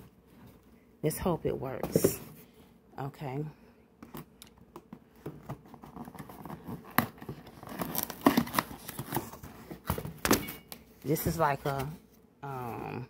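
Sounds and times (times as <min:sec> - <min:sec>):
packaging being opened: 0:05.7 - 0:10.4.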